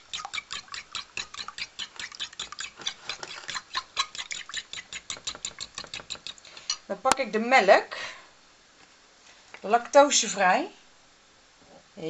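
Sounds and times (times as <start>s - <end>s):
utensil tapping inside ceramic mug: 0.1s - 6.4s.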